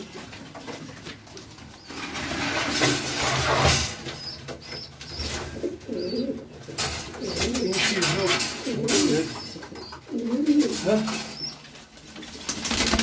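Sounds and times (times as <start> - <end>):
pigeons cooing: 1.8 - 13.0.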